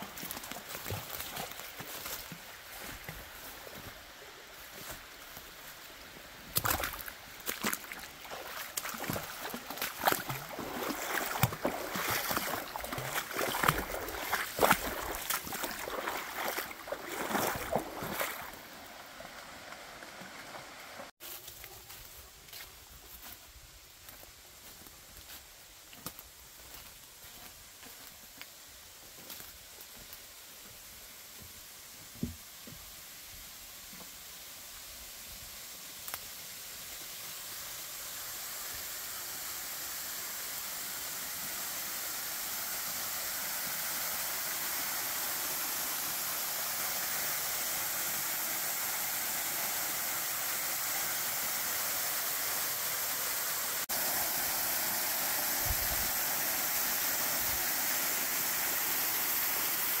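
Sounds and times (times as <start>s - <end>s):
waterfall rushing: 7.1s - 21.2s, 44.6s - 60.0s.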